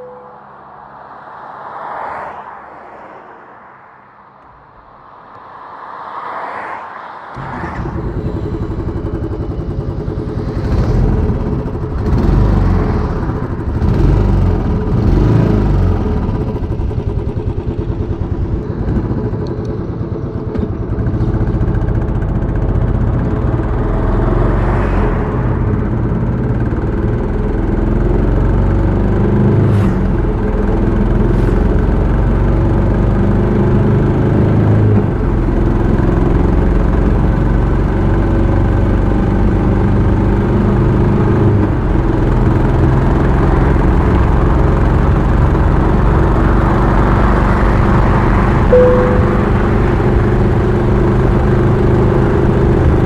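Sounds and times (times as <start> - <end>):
motorcycle engine and exhaust: 7.0 - 53.0.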